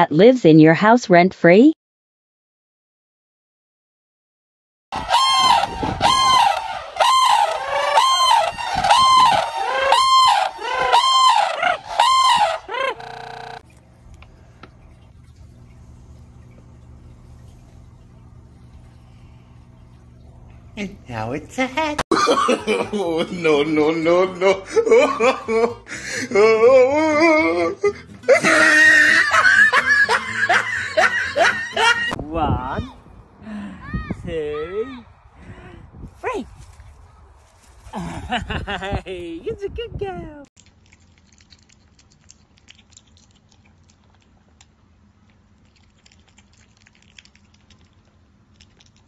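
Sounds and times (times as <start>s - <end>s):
pellets crunching and clicking: 40.6s - 44.7s.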